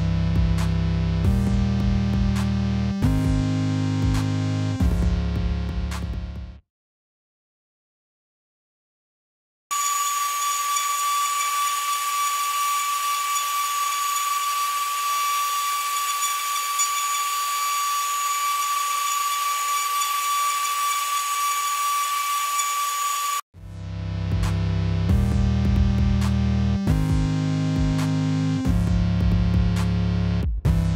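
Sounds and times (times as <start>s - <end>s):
music: 0.0s - 6.7s, 23.6s - 30.9s
router spindle whining: 9.7s - 23.4s.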